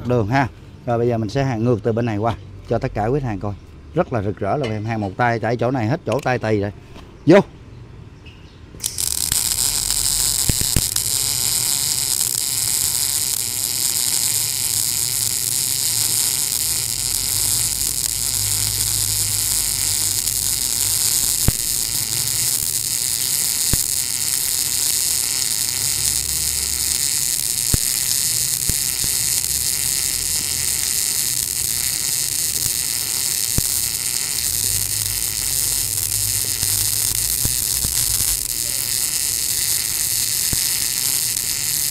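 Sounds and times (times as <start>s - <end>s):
welding arc hissing buzz: 8.8s - 41.9s.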